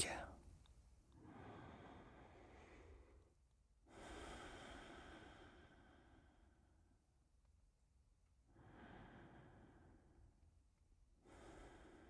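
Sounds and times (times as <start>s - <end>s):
person breathing deeply: 1.2s - 6.8s, 8.5s - 10.3s, 11.2s - 12.0s.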